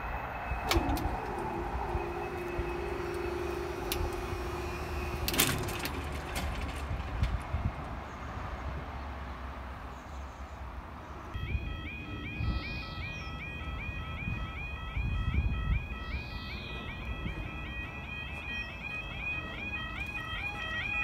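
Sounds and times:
barrier motor humming: 0:00.0 - 0:07.4
barrier clunk: 0:00.5 - 0:07.6
barrier click: 0:05.1 - 0:07.5.

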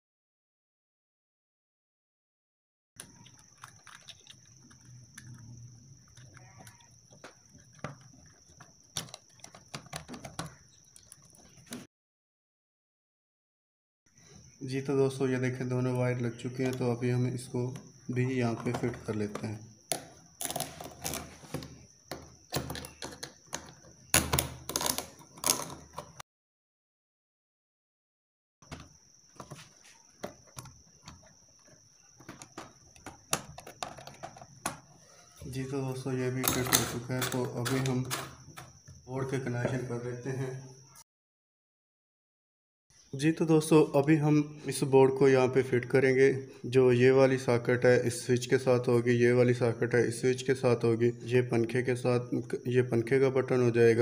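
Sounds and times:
plastic clicks and knocks: 0:06.2 - 0:11.8, 0:18.5 - 0:26.2, 0:28.6 - 0:34.9.

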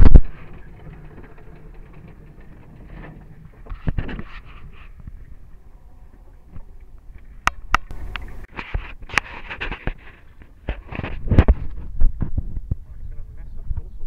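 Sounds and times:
microphone scraping and rustling: 0:00.0 - 0:14.0.

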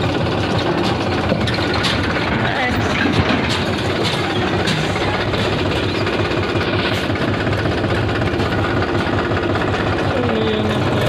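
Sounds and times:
tractor diesel engine chugging: 0:00.0 - 0:11.0.

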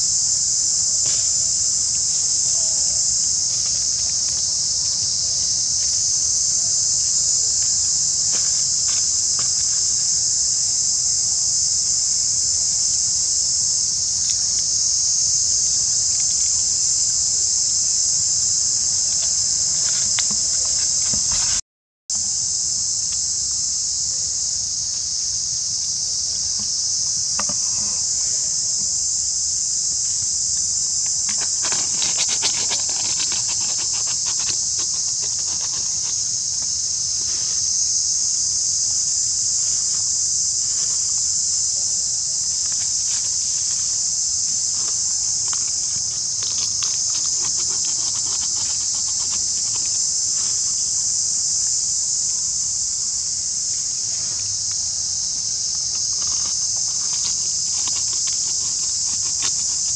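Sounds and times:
insect chorus drone: 0:00.0 - 0:59.9.

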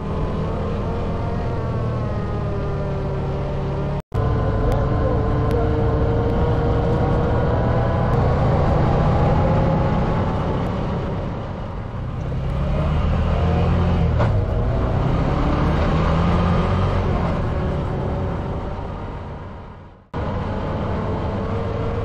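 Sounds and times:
off-road vehicle engine running: 0:00.0 - 0:22.0.

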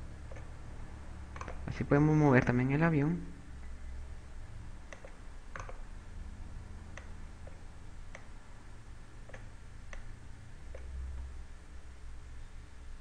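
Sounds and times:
faint low hum: 0:00.0 - 0:13.0
mouse and keyboard clicking: 0:00.3 - 0:00.5, 0:01.3 - 0:01.8, 0:04.9 - 0:05.9.

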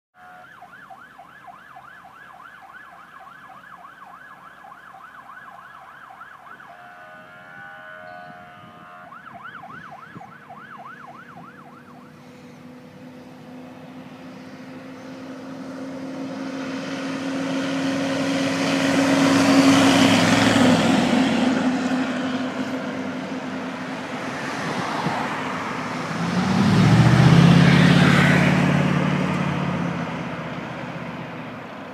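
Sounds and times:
siren wailing: 0:00.2 - 0:12.2
fire truck passing: 0:00.2 - 0:31.9
pickup truck engine passing: 0:06.5 - 0:31.9.

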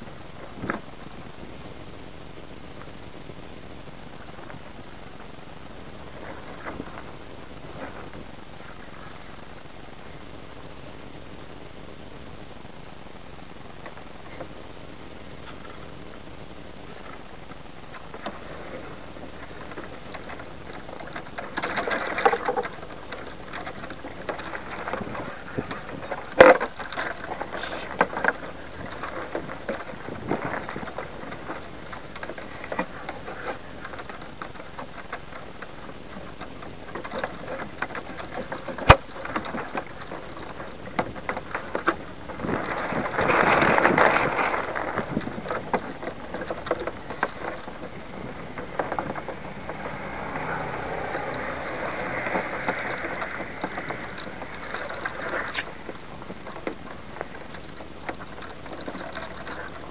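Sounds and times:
gusting wind: 0:00.0 - 0:59.9
rigging rattling and ticking: 0:12.2 - 0:59.9.

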